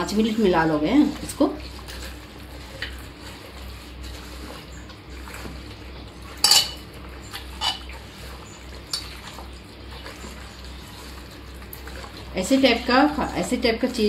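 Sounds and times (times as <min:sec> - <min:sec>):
chicken mixed by hand in bowl: 0:00.0 - 0:14.0
clinks and knocks against dish: 0:06.4 - 0:06.8.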